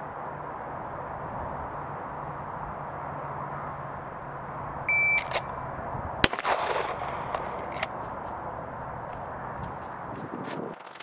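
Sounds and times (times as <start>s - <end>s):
shot timer beep: 4.9s - 5.3s
pistol shot echoing: 6.2s - 7.9s.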